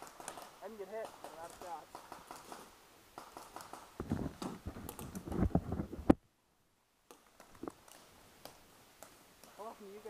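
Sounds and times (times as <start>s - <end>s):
irregular clicks: 4.8s - 5.5s, 7.0s - 9.6s.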